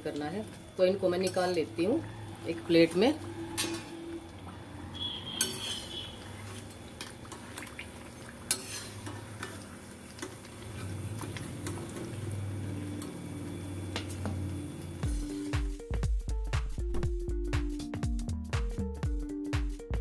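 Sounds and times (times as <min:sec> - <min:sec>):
oil sizzling softly: 0:00.0 - 0:15.6
ladle scraping metal pan: 0:02.8 - 0:04.1, 0:05.0 - 0:07.2, 0:08.5 - 0:09.6.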